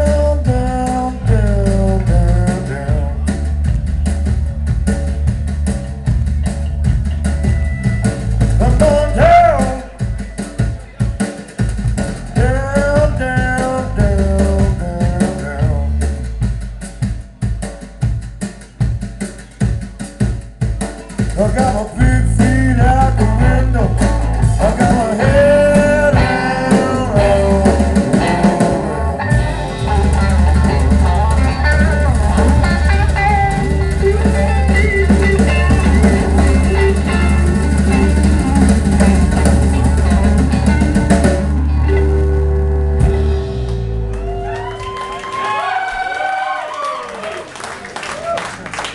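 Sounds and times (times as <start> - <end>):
bass guitar: 0.0 - 46.9
drum kit: 0.0 - 46.9
electric guitar: 21.4 - 46.1.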